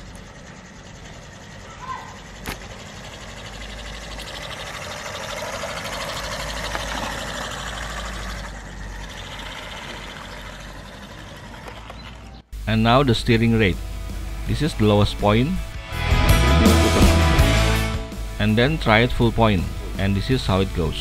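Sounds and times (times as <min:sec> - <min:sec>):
rc car motor whirring: 0:00.0 - 0:12.5.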